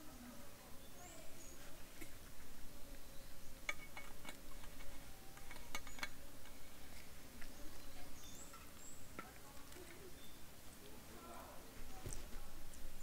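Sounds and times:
faint outdoor background: 0.0 - 13.0
high bird chirps: 7.6 - 9.2, 10.0 - 10.5.

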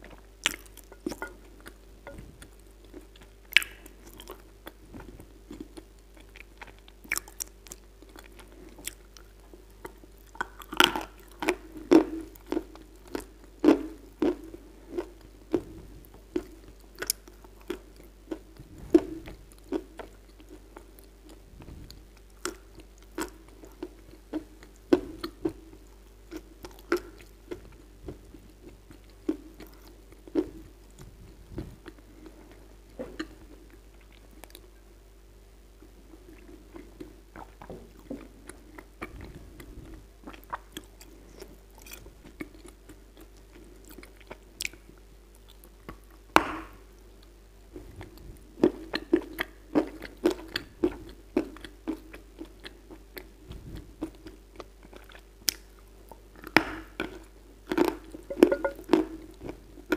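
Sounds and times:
chewing crunches: 54.0 - 58.8.

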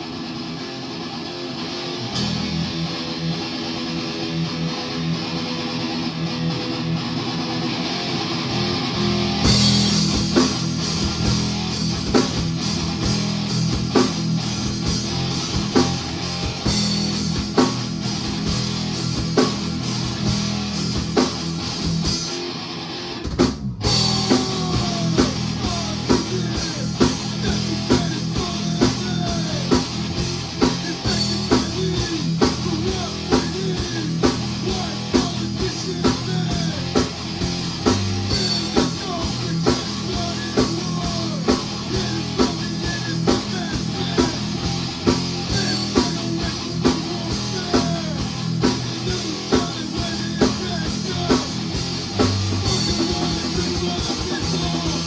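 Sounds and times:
heavy metal band playing live: 0.0 - 55.0.

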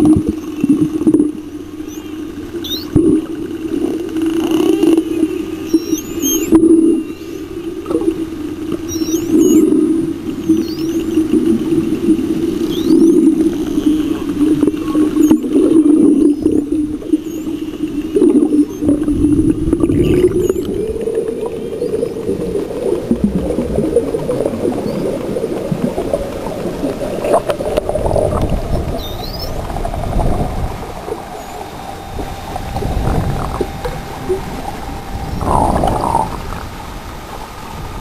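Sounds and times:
low droning hum: 0.0 - 38.0
dolphin whistles: 1.8 - 2.9, 5.6 - 7.4, 8.8 - 9.7, 10.4 - 11.2, 12.6 - 14.2, 19.9 - 20.7, 29.0 - 29.6.

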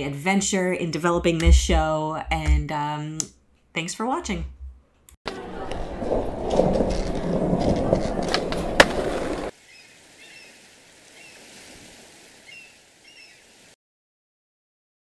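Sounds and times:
skateboard clack: 5.3 - 9.5
skateboard rolling: 5.3 - 9.6.

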